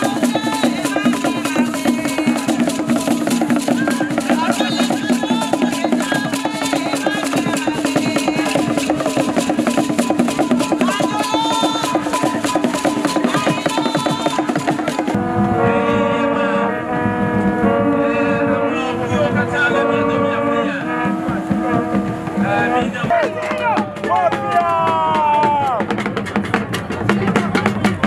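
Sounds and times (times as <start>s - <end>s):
voices singing: 0.0s - 26.0s
drum ensemble with rattles: 0.0s - 28.0s
horns blown in long notes: 10.5s - 25.2s.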